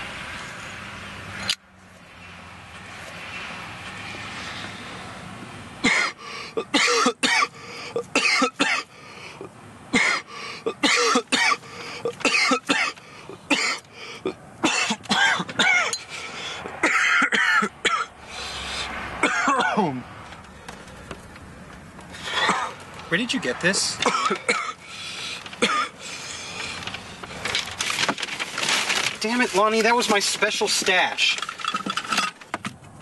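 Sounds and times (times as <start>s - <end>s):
man coughing hard: 5.8s - 8.9s, 9.9s - 13.9s, 14.6s - 16.0s, 16.8s - 18.1s, 19.2s - 20.0s, 24.0s - 24.8s, 25.6s - 26.0s.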